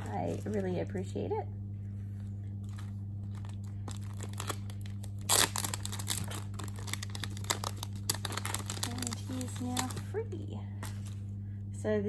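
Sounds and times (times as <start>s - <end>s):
plastic sleeve crinkling: 0.0s - 1.1s, 1.9s - 11.3s
tearing crackle: 2.6s - 10.1s.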